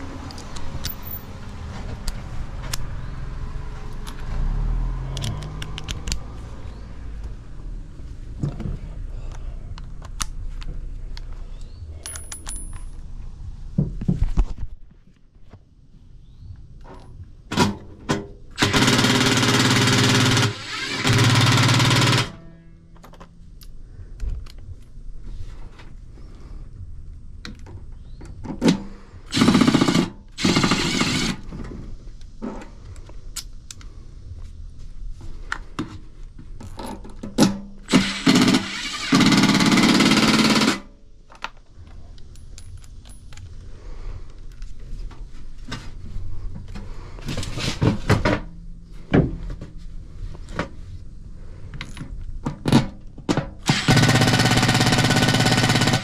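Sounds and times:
impact driver hammering bolts: 0:17.5 - 0:22.4, 0:37.4 - 0:40.8, 0:53.6 - 0:56.0.

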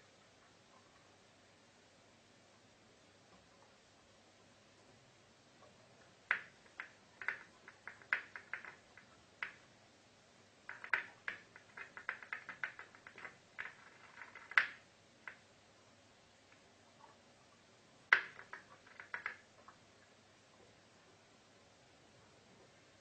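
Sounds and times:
light irregular clicks and taps: 0:05.6 - 0:09.7, 0:10.6 - 0:15.5, 0:18.1 - 0:19.8.

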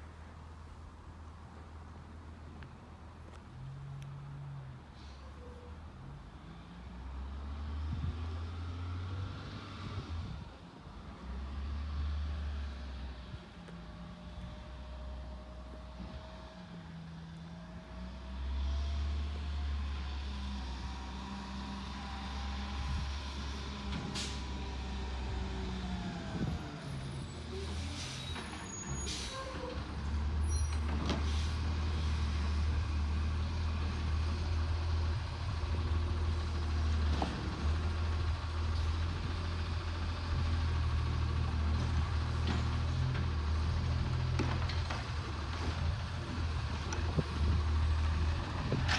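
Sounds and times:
garbage truck diesel engine: 0:03.7 - 0:48.9
air brake hisses: 0:24.1 - 0:24.5, 0:27.5 - 0:29.7.

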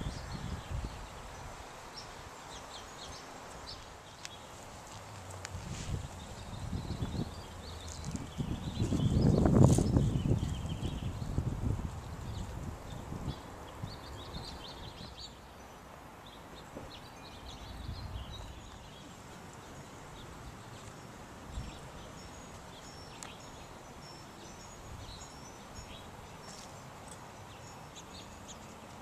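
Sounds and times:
steady hiss: 0:00.0 - 0:08.2
small birds chirping: 0:00.0 - 0:29.0.

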